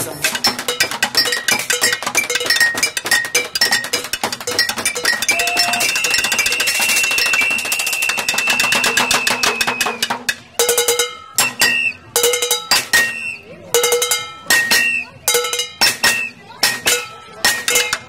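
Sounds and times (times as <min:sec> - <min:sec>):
drumming on plastic bin and bottles: 0:00.0 - 0:10.7.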